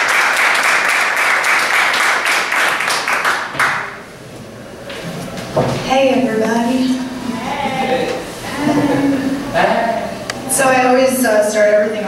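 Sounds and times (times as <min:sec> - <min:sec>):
audience applauding: 0:00.0 - 0:04.0.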